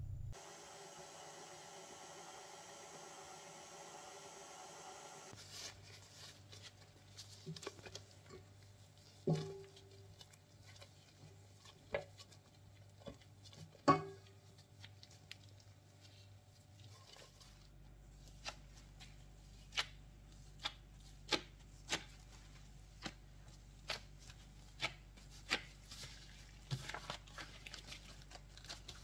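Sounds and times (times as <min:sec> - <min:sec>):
stand mixer motor running: 0:00.4 - 0:05.3
dough scraping and rustling: 0:05.3 - 0:29.0.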